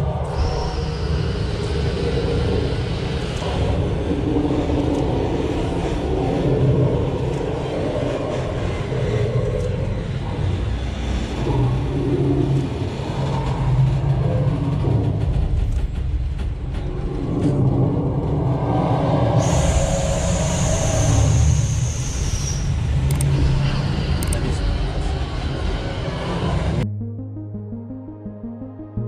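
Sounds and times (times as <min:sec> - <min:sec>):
tram engine rumbling: 0:00.0 - 0:26.9.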